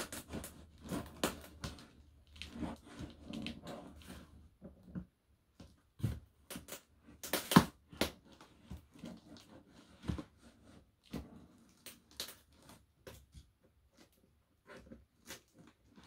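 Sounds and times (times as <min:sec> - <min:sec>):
tape and cardboard tearing: 0:06.6 - 0:08.2.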